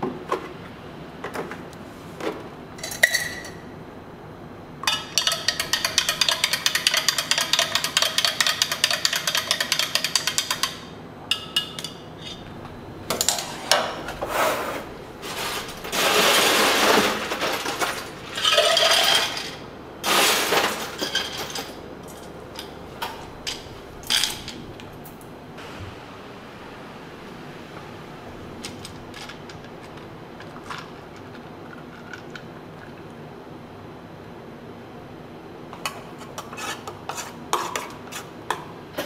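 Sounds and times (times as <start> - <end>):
ice scooped and rattling: 15.2 - 19.5.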